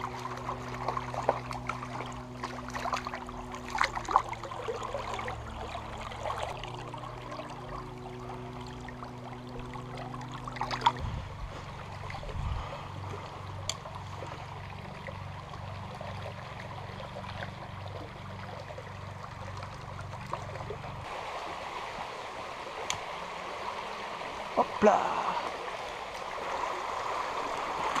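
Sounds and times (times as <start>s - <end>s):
river flowing over stones: 14.0s - 28.0s.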